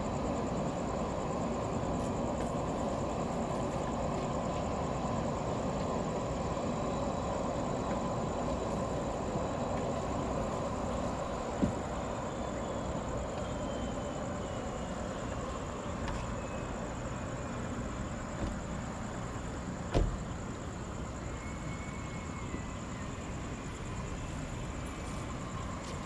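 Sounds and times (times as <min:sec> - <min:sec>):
distant jet engines rumbling: 0:00.0 - 0:26.0
faint high whine: 0:00.0 - 0:26.0.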